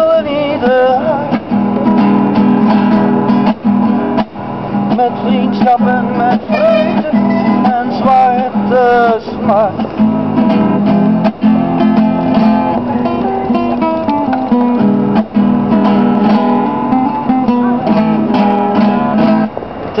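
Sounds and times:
acoustic guitar playing: 0:00.0 - 0:20.0.

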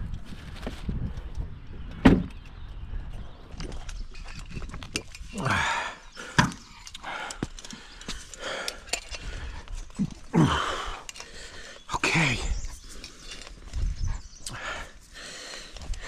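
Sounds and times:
man groaning on exhale: 0:05.4 - 0:06.0, 0:10.0 - 0:11.0.

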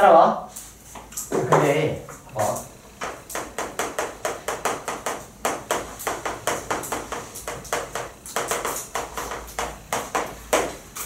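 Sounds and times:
chalk tapping and scraping on blackboard: 0:03.0 - 0:11.0.

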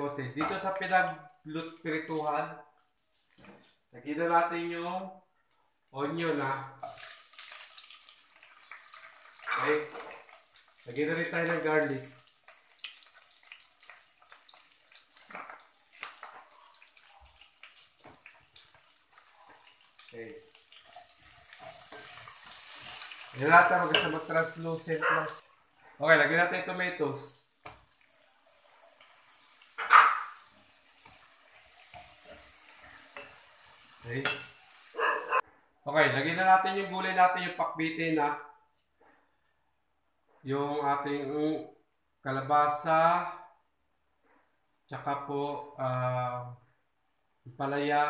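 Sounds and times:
onion and garlic sizzling in oil: 0:06.8 - 0:35.4.

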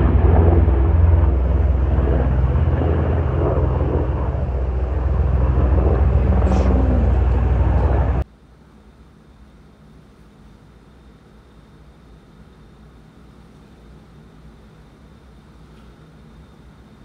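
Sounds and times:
vehicle engine rumbling: 0:00.0 - 0:08.2.

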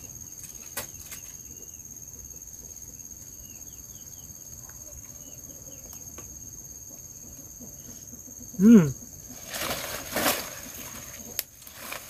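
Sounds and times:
insects droning: 0:00.0 - 0:12.0
loud voice-like sound: 0:08.6 - 0:09.0.

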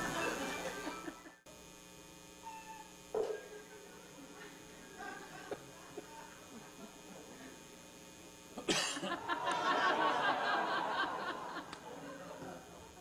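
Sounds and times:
audience laughing: 0:00.0 - 0:01.4, 0:08.7 - 0:13.0.

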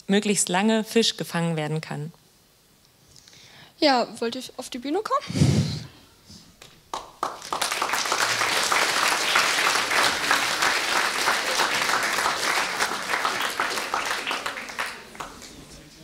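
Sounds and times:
audience applauding: 0:06.6 - 0:16.0.

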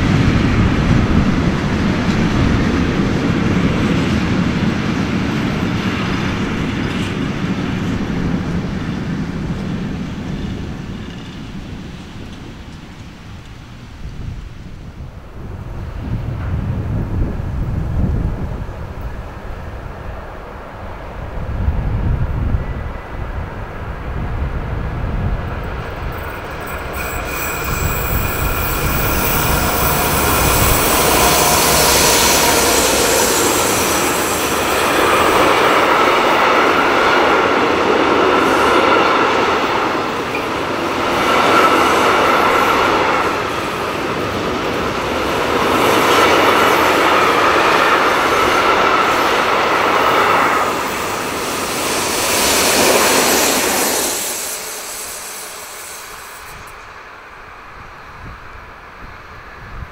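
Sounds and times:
train wagons rolling: 0:00.0 - 0:14.0, 0:25.0 - 0:57.0
high squeal of train wheels: 0:00.0 - 0:14.2, 0:24.9 - 0:59.8
diesel locomotive rumble: 0:23.4 - 0:56.8.

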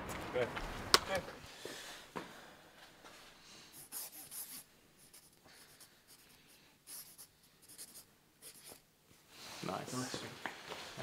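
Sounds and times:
marker pen squeaking on fabric: 0:03.8 - 0:08.8.

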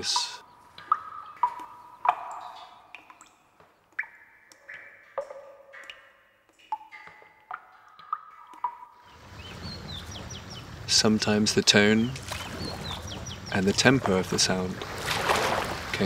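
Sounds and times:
water drops plinking into jar: 0:00.0 - 0:09.5.

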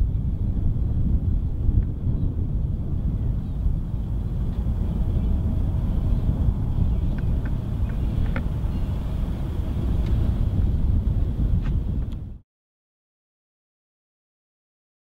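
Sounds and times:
distant light aircraft engine: 0:00.0 - 0:12.4
wind rumble on microphone: 0:00.0 - 0:12.4.

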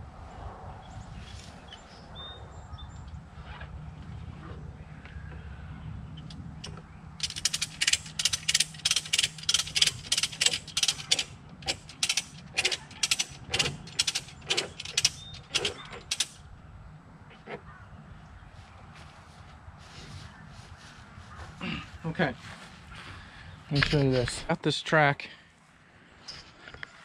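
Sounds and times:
ratchet strap clicking: 0:06.2 - 0:16.4.

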